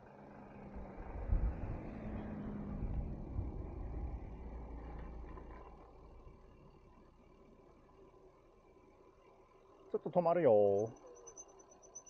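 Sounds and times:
car passing: 0.1s - 5.4s.

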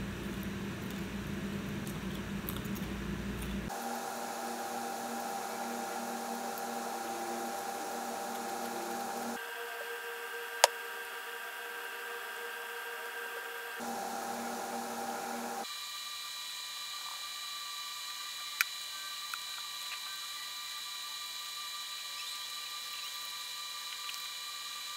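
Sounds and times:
electrical hum: 0.0s - 15.7s.

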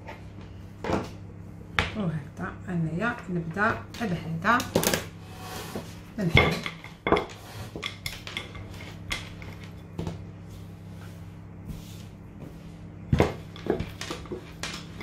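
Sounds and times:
rolling pin rolling over dough: 5.2s - 15.0s.

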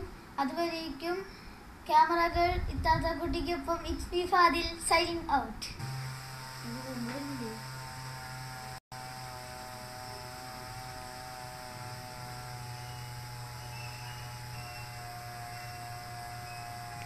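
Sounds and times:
small electric motors humming: 5.8s - 17.0s.

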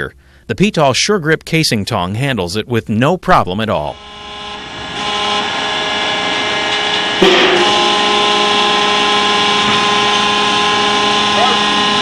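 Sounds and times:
hydraulic machine hum: 3.9s - 12.0s.

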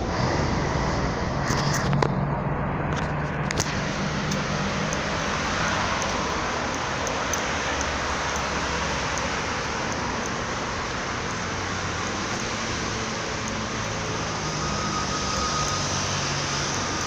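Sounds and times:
vehicle running noise: 0.0s - 17.0s.

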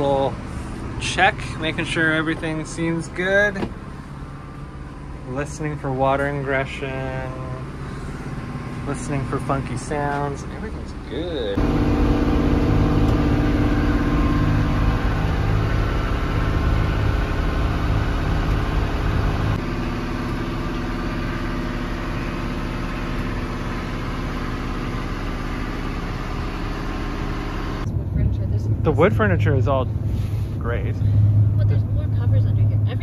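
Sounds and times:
boat engine droning: 0.0s - 33.0s.

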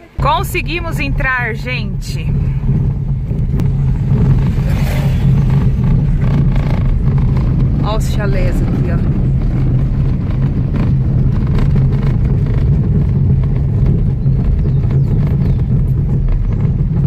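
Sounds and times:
car engine rumble: 0.0s - 17.0s
road noise: 0.0s - 17.0s.

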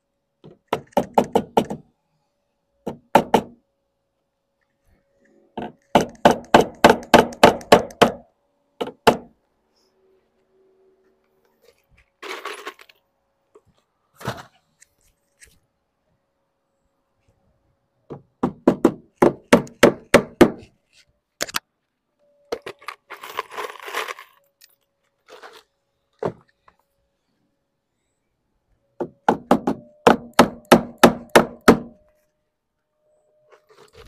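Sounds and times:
hammer driving nails: 0.5s - 1.8s, 2.9s - 3.6s, 5.6s - 8.2s, 8.8s - 9.3s, 18.1s - 20.6s, 29.0s - 32.0s
scrape: 14.1s - 15.6s, 25.2s - 25.7s, 33.5s - 34.0s.

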